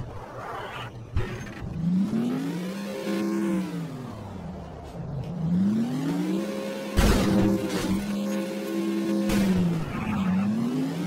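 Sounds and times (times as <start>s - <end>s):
video game engine revving: 0.0s - 11.0s.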